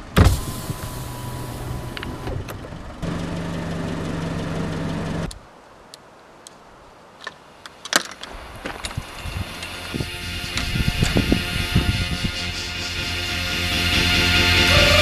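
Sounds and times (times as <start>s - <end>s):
power window motor humming: 0.0s - 5.3s
car engine running: 0.0s - 5.4s
faint clicks: 5.3s - 6.6s.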